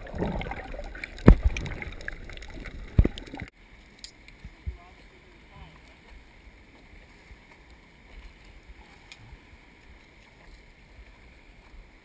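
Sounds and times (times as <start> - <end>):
faint wash of water: 0.0 - 12.0.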